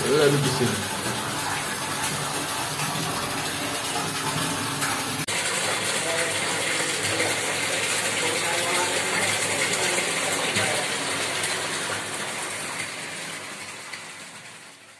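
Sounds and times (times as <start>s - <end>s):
water splashing into tank: 0.0s - 14.9s.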